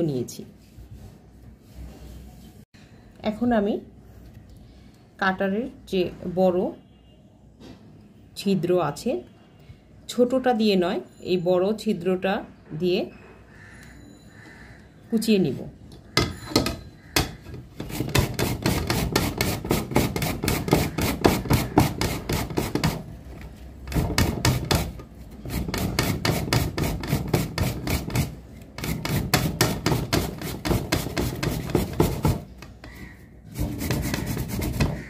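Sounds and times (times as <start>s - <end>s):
grater scraping strokes: 17.7s - 23.1s, 23.9s - 35.0s.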